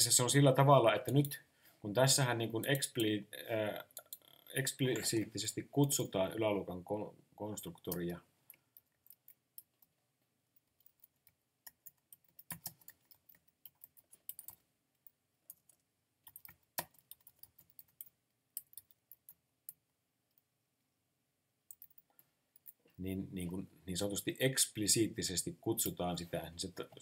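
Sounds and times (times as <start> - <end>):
typing on computer keyboard: 10.7 - 19.4.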